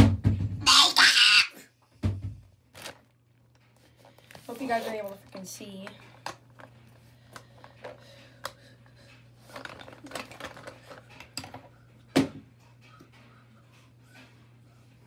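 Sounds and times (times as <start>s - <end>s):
small clicks and rattles: 5.1s - 11.8s.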